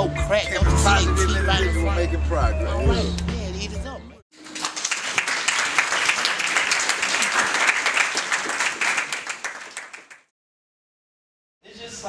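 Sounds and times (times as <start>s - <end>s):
crowd applauding: 4.3s - 10.3s.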